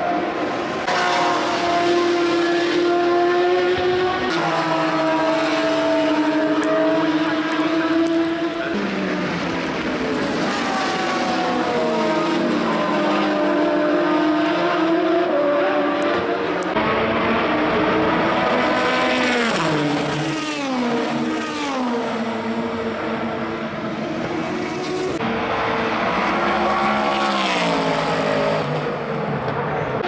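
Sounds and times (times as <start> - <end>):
race car engines passing: 0.0 - 30.0.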